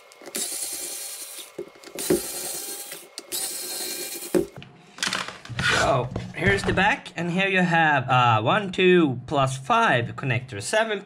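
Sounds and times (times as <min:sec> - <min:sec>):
electric screwdriver whirring: 0:00.1 - 0:04.6.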